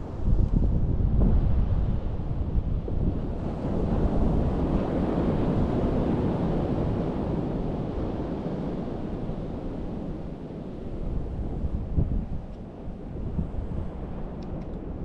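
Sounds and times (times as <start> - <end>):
wind rumbling on microphone: 0.0 - 15.0
surf washing up beach: 1.5 - 12.0.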